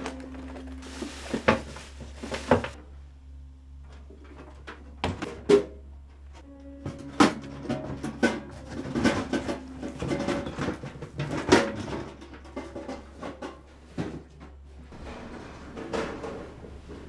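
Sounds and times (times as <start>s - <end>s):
soft music: 0.0s - 2.5s, 6.4s - 12.7s
cardboard rustling: 0.0s - 2.8s
lunchboxes knocking and clattering: 6.9s - 16.6s.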